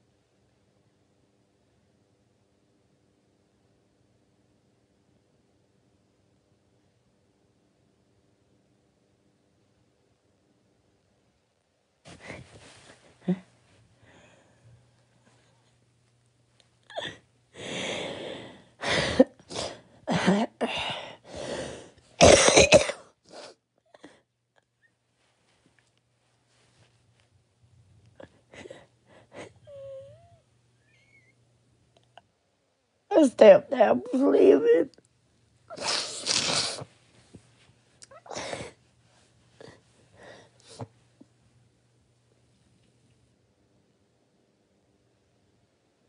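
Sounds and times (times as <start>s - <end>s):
person breathing close to microphone: 17.5s - 19.8s, 20.6s - 22.0s
person coughing: 22.2s - 23.2s.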